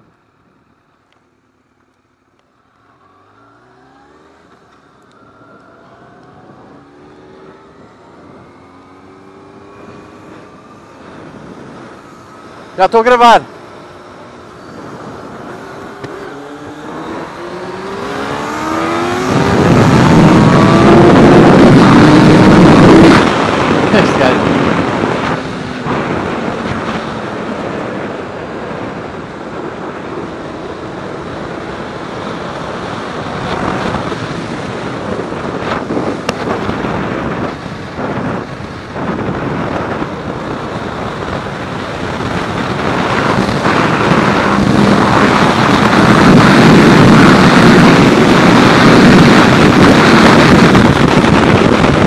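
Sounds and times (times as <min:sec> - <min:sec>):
wind rushing over microphone: 0:03.1 - 0:52.0
motorcycle engine running: 0:13.5 - 0:52.0.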